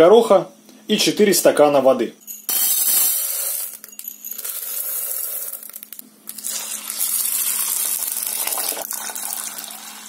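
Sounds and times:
dry peas poured into pot: 4.4 - 10.0
water splashing into pot: 6.4 - 10.0.

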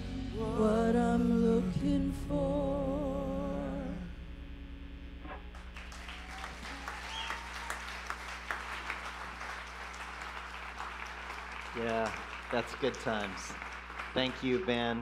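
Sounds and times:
audience clapping: 5.5 - 15.0.

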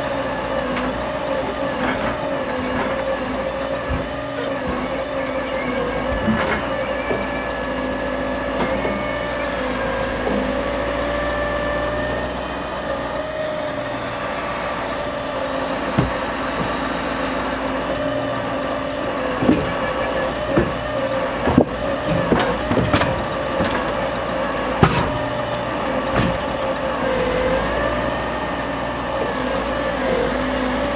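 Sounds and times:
hydraulic whine: 0.0 - 30.9
truck engine droning: 0.0 - 30.9
logs knocking and thudding: 3.8 - 5.0, 6.0 - 7.3, 15.4 - 24.1, 24.7 - 26.7.

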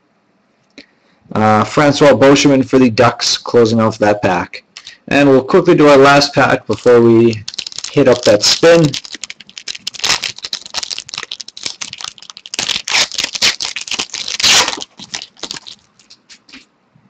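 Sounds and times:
card pack wrapper crinkling and tearing: 7.1 - 16.3
cards clicking and rustling: 7.1 - 16.6.

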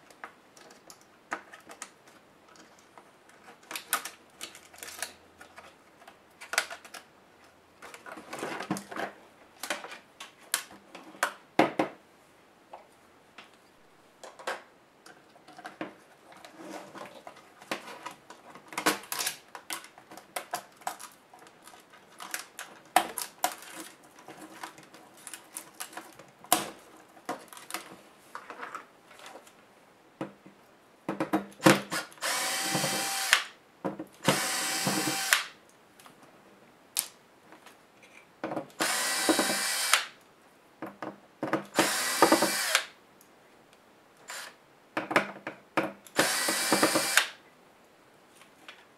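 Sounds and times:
electric screwdriver running: 32.2 - 33.5, 34.2 - 35.5, 38.8 - 40.1, 41.8 - 42.9, 46.2 - 47.3.

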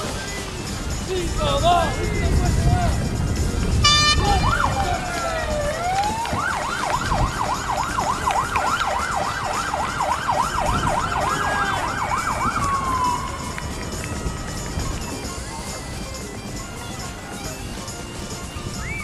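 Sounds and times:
electronic siren wailing: 3.8 - 15.7.

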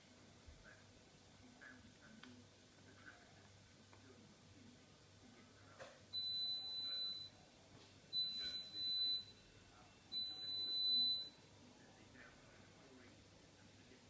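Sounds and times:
high electronic beeps: 8.2 - 9.4.

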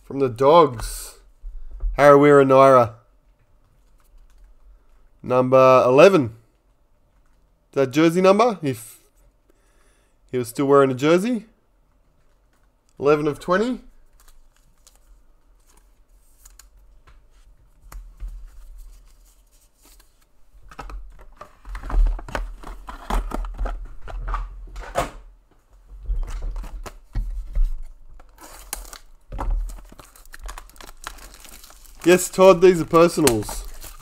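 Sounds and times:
cards tapping and rustling: 26.6 - 34.0
plastic wrap crinkle: 27.4 - 34.0.

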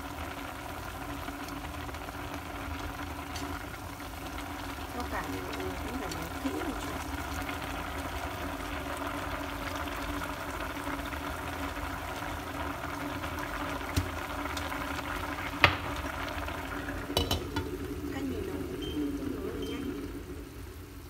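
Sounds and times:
soup boiling in a pot: 0.0 - 21.0.

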